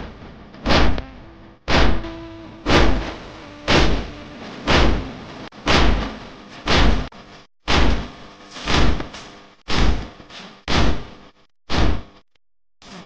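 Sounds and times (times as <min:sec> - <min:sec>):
chest-beating thumps: 0:00.6 - 0:07.1
faint held tone: 0:01.0 - 0:05.3.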